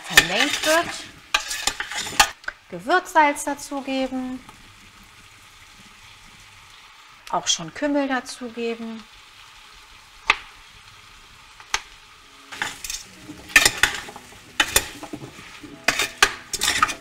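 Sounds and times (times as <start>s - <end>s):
spoon scraping metal pot: 0.0s - 2.4s, 12.5s - 17.0s
butter sizzling: 0.0s - 17.0s.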